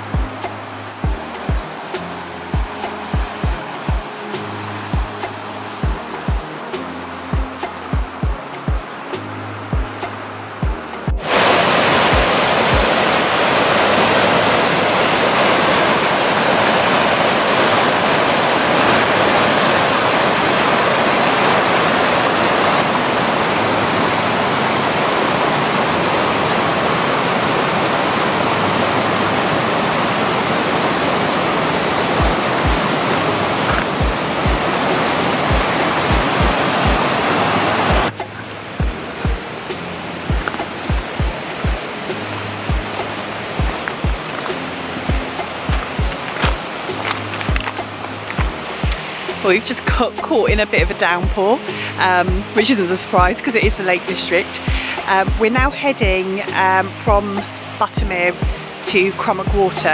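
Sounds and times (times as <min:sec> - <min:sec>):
background music with low beat: 0:00.0 - 0:11.3, 0:12.0 - 0:13.0, 0:32.2 - 0:51.7, 0:52.3 - 0:58.7, 0:59.5 - 0:59.9
waterfall rushing over boulders: 0:00.0 - 0:59.9.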